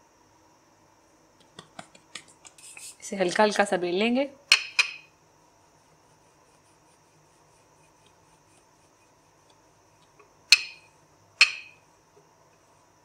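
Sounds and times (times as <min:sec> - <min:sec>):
faint steady hum: 0:00.0 - 0:13.0
rolling pin clacking on worktop: 0:11.4 - 0:11.8.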